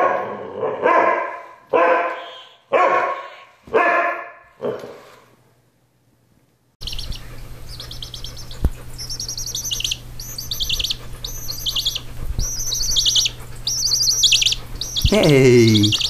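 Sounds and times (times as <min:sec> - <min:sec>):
chick peeping: 0:06.8 - 0:16.0.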